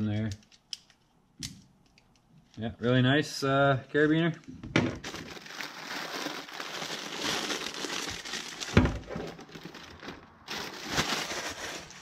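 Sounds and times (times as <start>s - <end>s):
packaging crinkling and rustling: 4.3s - 12.0s.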